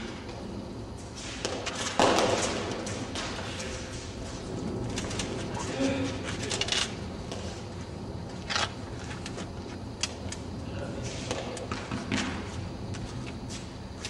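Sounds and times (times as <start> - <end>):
ball smacking off walls: 1.4 - 3.4.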